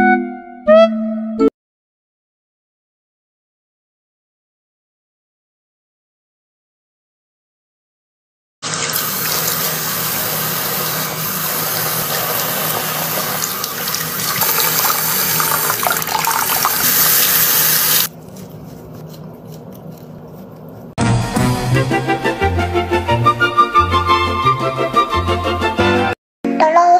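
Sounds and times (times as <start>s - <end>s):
faucet water running: 8.6s - 18.1s.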